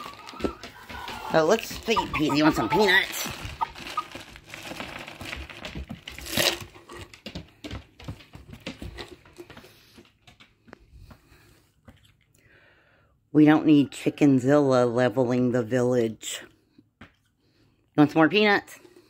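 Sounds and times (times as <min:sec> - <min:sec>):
hen beak tapping on wood: 0:00.0 - 0:02.8.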